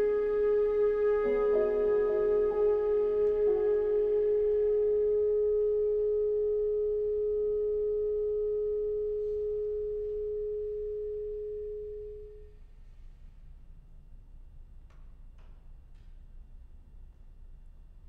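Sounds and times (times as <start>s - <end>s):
chamber ensemble holding a chord: 0.0s - 5.2s.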